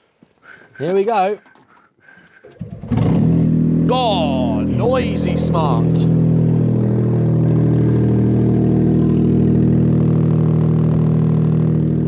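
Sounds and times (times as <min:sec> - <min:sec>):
car engine idling loudly: 0:03.6 - 0:12.0.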